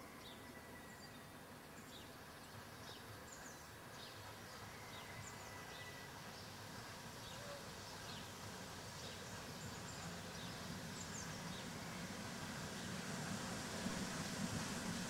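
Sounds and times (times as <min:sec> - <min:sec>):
faint birdsong chirps: 0:00.0 - 0:06.6
background hiss: 0:00.0 - 0:15.0.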